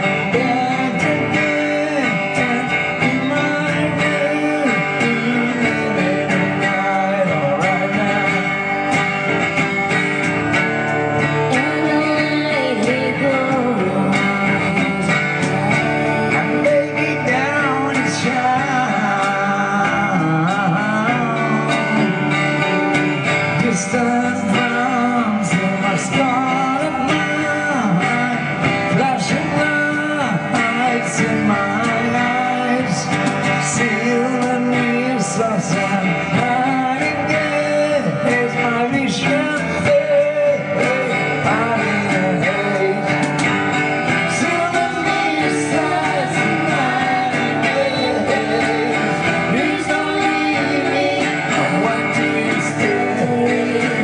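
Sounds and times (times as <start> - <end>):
acoustic guitar: 0.0 - 54.0
woman singing: 11.4 - 15.8, 44.4 - 54.0.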